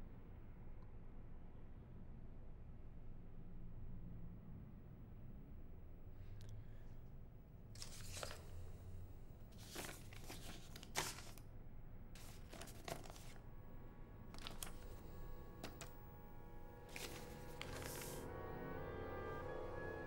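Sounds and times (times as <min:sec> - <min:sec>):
paper rustling: 0:07.8 - 0:08.6, 0:09.5 - 0:11.4, 0:12.2 - 0:13.4, 0:14.3 - 0:16.0, 0:16.9 - 0:18.3.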